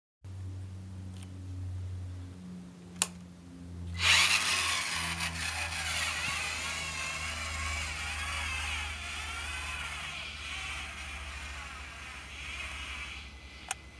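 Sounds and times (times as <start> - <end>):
steady low hum: 0.3 - 13.9
electric gear motors whining: 3.9 - 13.8.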